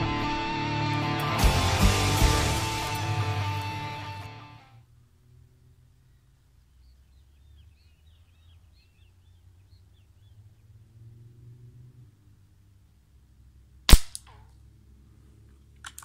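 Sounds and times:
guitar music: 0.0s - 4.8s
birds chirping faintly: 4.9s - 13.7s.

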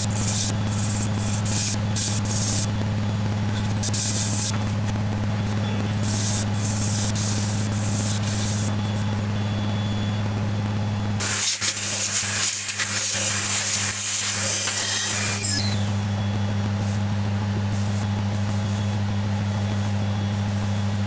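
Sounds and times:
lathe machine hum: 0.0s - 16.4s
abrasive sanding hiss: 6.0s - 8.7s, 11.2s - 15.8s.

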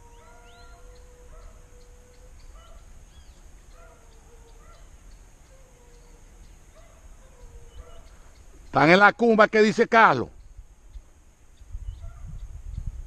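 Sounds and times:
hunting dogs baying: 0.0s - 3.0s, 3.7s - 8.4s
small bird chirping: 0.0s - 8.8s, 10.4s - 13.0s.

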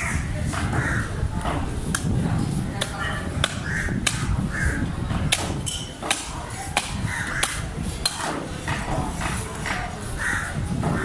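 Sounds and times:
knife striking fish bone: 5.3s - 8.4s.

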